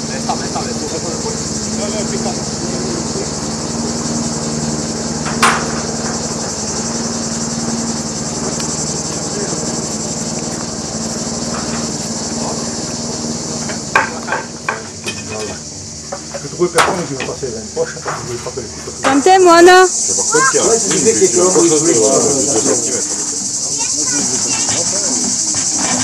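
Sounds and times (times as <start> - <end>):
insects chorus: 0.0 - 26.0
sharp knocks on timber: 5.2 - 6.2.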